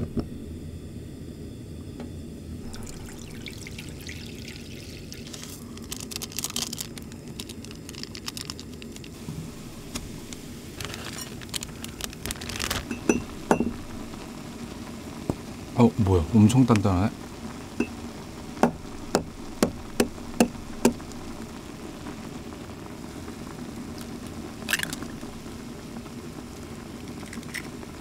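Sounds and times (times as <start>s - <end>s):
broth bubbling in a pot: 2.4s - 28.0s
packet crinkling: 2.7s - 9.2s, 9.9s - 14.2s, 23.9s - 25.4s, 27.0s - 27.8s.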